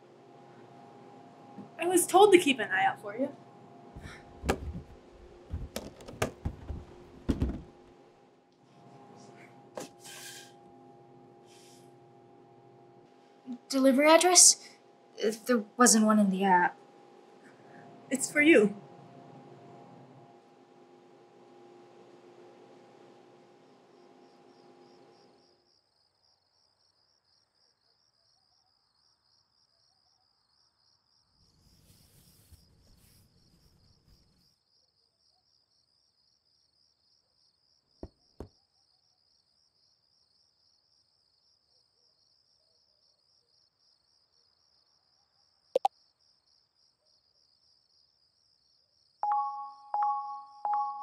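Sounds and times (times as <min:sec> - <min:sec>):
crickets chirping: 0:23.6 - 0:49.2
soft rustle: 0:31.7 - 0:34.4
two-tone phone chimes: 0:49.2 - 0:51.0.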